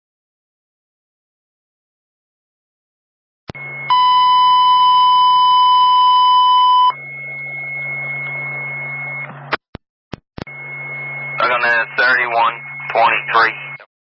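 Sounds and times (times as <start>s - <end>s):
loud steady alert tone: 3.5s - 9.2s, 10.5s - 13.9s
radio hiss and hum: 6.9s - 9.7s, 10.4s - 13.9s.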